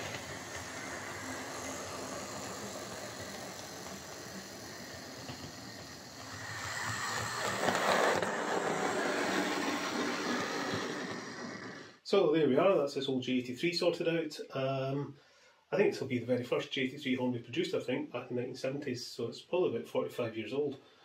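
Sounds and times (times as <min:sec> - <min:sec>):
model locomotive running on track: 0:00.0 - 0:12.0.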